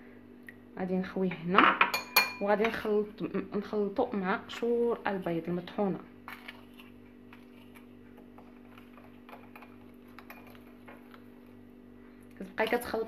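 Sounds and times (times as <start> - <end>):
metal spoon tapping ceramic: 1.9 - 2.5.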